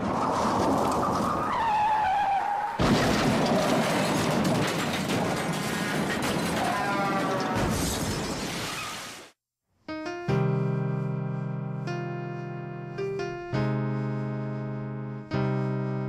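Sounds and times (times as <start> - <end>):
crunching metal and breaking glass: 2.8 - 9.0
car crash impact: 2.8 - 9.2.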